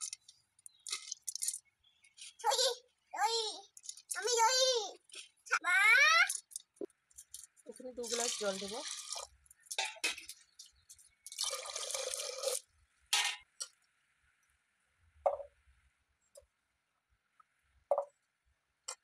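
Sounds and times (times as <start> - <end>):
water drips and plops: 0.0 - 2.3, 6.2 - 12.7
water pouring into a pot: 0.8 - 1.6, 8.0 - 12.7.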